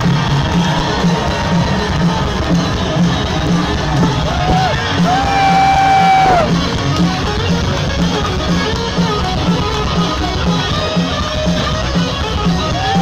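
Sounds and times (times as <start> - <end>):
live rock music: 0.0 - 13.0.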